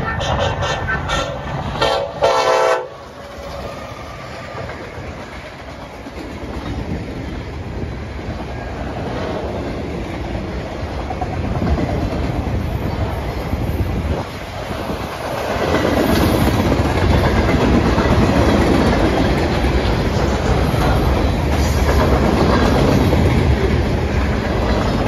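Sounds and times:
locomotive horn blast: 0.0 - 3.0
freight train cars rolling past: 0.0 - 25.0.

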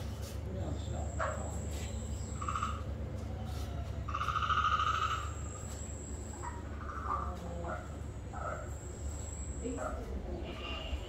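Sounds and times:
steady low hum: 0.0 - 11.0
small animal pulsed trill: 4.1 - 11.0.

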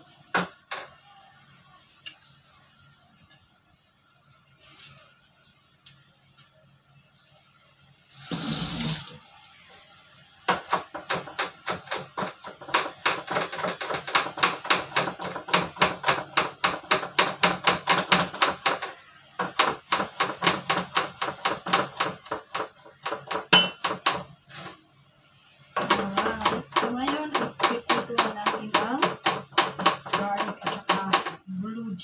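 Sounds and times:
knife chopping on wooden board: 25.8 - 31.4.

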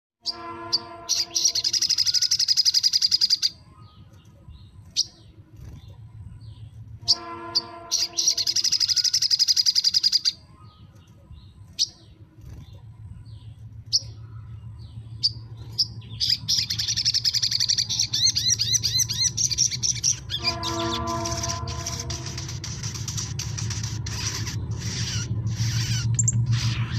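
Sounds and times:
bird fast high trilling: 0.2 - 3.6, 7.0 - 10.4, 15.2 - 26.9
bird sharp chips: 0.2 - 12.9, 15.2 - 26.9.

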